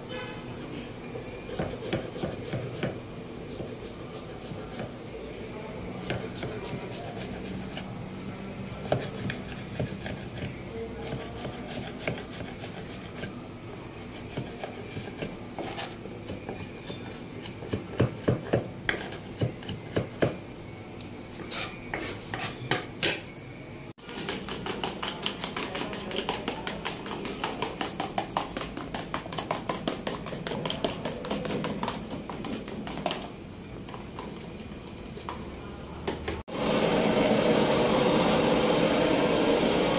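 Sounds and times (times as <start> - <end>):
knife chopping on wooden board: 1.5 - 3.7, 14.3 - 20.4, 24.1 - 33.2.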